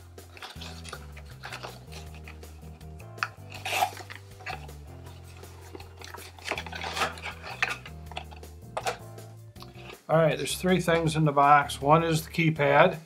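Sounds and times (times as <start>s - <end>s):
background music: 0.0s - 13.0s
cardboard and plastic rustling: 0.3s - 9.0s.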